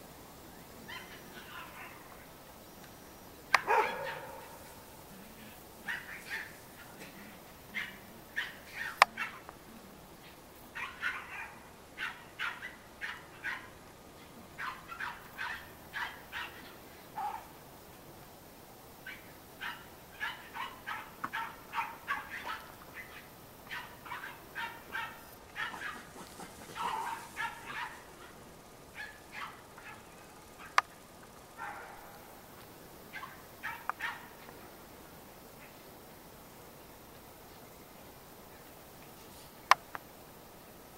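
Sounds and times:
puppies yapping: 0:03.5 - 0:04.6, 0:19.1 - 0:26.1.

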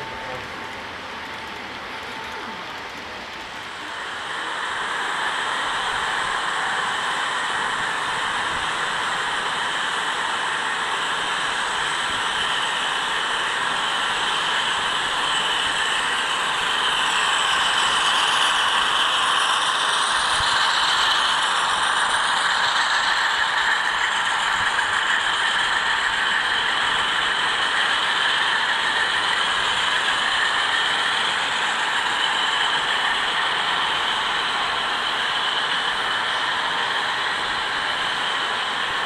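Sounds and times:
model train wheels clattering on rail: 0:12.4 - 0:39.0.

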